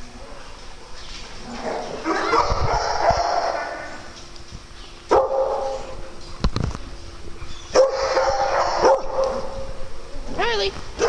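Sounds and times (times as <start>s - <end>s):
dogs barking: 0.1s - 4.1s, 5.1s - 6.0s, 7.7s - 9.9s.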